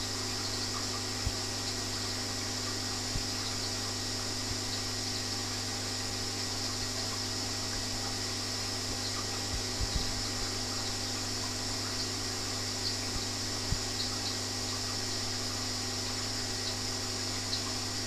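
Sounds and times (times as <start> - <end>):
aquarium pump humming: 0.0 - 18.0.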